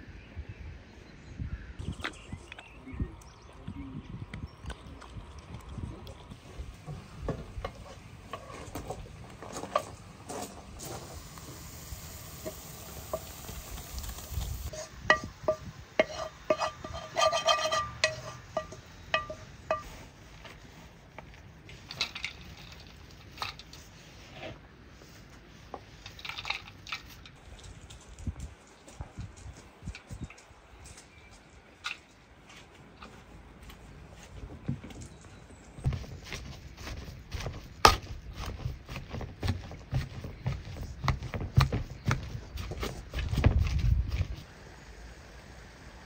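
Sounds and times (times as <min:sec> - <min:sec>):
metal pan clinking against bowl: 0:14.7 - 0:19.9.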